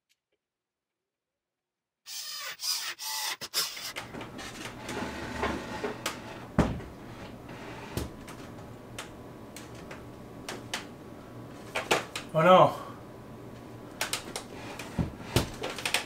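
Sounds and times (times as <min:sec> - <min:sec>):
wooden table scraping: 0:03.6 - 0:08.0.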